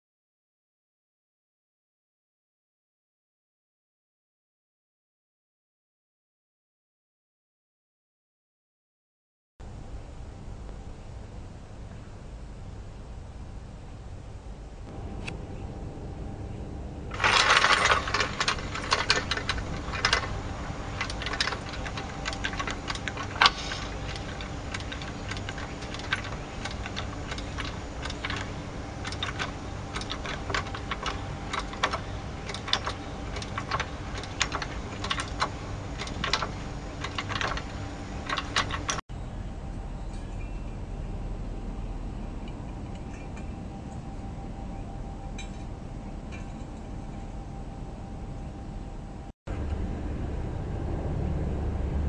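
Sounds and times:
metallic rattle: 17.1 - 39.0.

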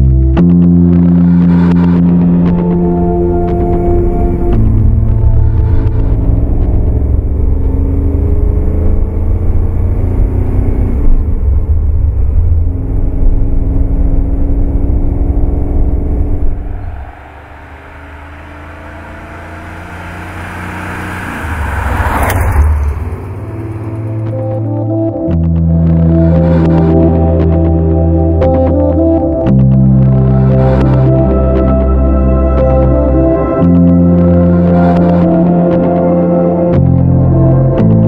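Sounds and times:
car engine accelerating: 0.0 - 38.0.

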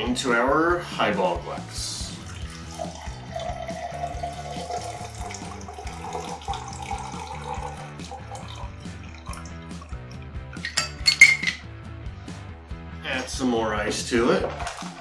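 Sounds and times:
background music: 0.0 - 15.0
cocktail pouring over ice: 2.2 - 9.9, 14.4 - 15.0.

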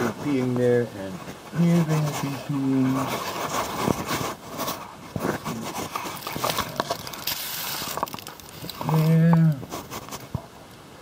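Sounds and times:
rustling and scraping objects: 0.0 - 10.6
small irregular clicks: 3.0 - 10.8.

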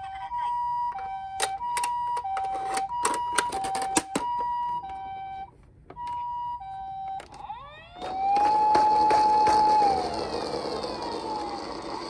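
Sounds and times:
toy two-tone siren: 0.0 - 12.0
plastic toy clicks and clatter: 8.0 - 12.0.

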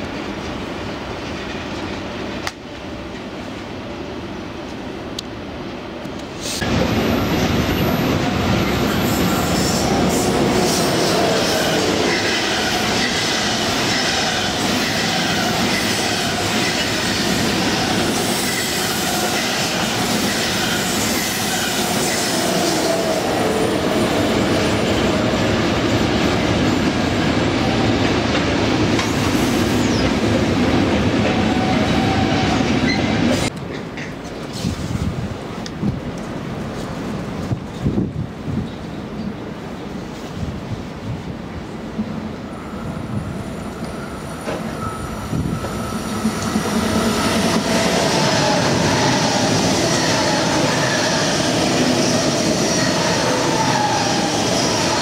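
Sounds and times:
train passing on rails: 0.0 - 55.0.

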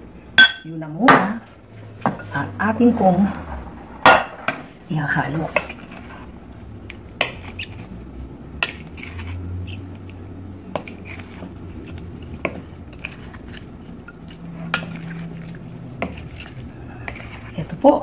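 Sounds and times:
spoon knocking glass bowl: 0.4 - 0.7
spoon stirring salad: 5.1 - 18.0.

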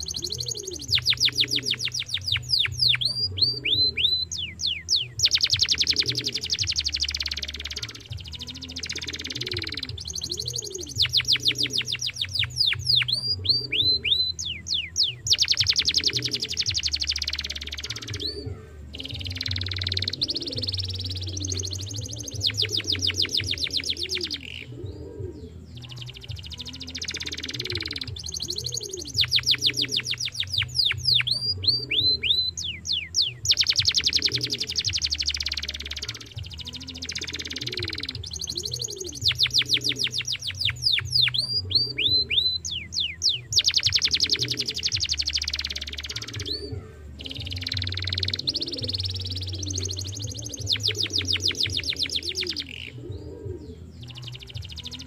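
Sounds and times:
canary singing rapid trills: 0.0 - 55.0.

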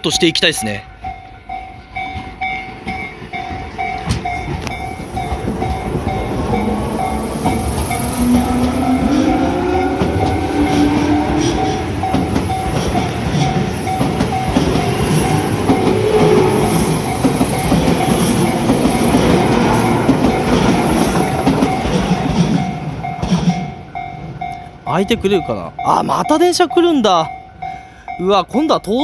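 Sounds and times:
electric train passing: 0.0 - 29.0
level-crossing warning bell: 0.0 - 29.0
wheels clattering over rail joints: 1.9 - 24.0
train motor whine: 2.0 - 22.1.

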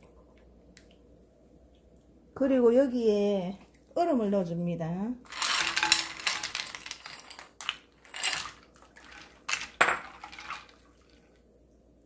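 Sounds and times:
spoon stirring ice against glass: 5.3 - 11.1
ice cubes clattering into glass bowl: 5.3 - 11.2.

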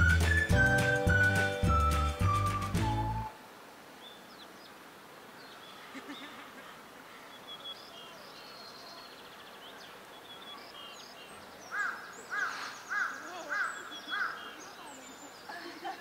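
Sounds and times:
small birds chirping: 3.9 - 16.0
bird repeated calls: 11.6 - 15.5.

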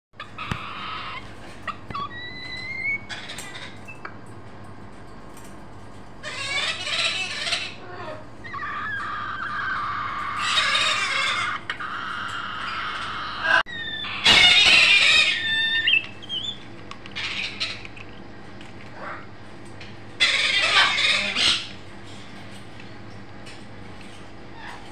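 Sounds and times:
cockatoo squawking and screeching: 0.2 - 4.0, 6.2 - 18.0, 18.9 - 19.3, 20.2 - 21.8, 24.5 - 24.9.

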